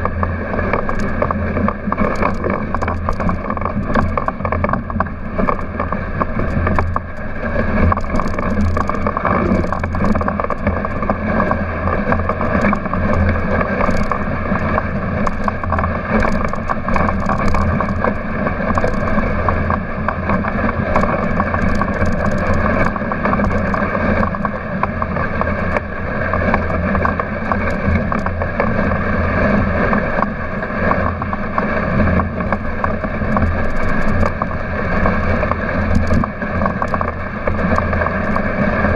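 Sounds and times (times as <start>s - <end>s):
sled rattling: 0.0s - 38.9s
sled runners rushing over snow: 0.0s - 38.9s
wind buffeting microphone: 0.0s - 38.9s.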